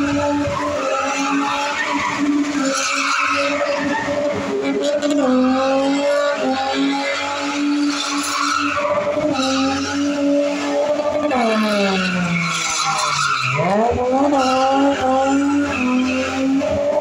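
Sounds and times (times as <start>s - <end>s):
tyres spinning and squealing: 0.0s - 4.4s, 7.0s - 17.0s
car engine at high revs: 0.0s - 17.0s.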